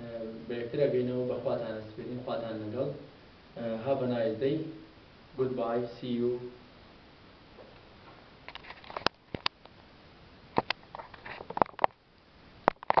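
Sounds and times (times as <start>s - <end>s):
soft rustling: 7.5s - 9.5s.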